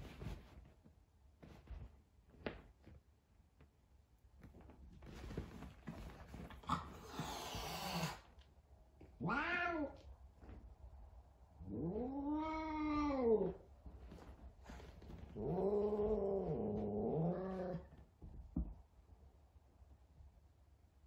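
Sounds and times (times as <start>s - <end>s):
cat yowling: 9.2s - 10.0s.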